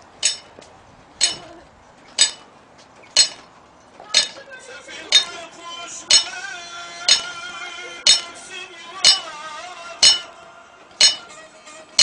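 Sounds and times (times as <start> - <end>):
hammer striking metal: 0.2 - 0.5, 1.2 - 1.6, 2.2 - 2.5, 3.2 - 3.5, 4.1 - 4.4, 5.1 - 5.4, 6.1 - 6.4, 7.1 - 7.4, 8.0 - 8.4, 9.0 - 9.4, 10.0 - 10.4, 11.0 - 11.3.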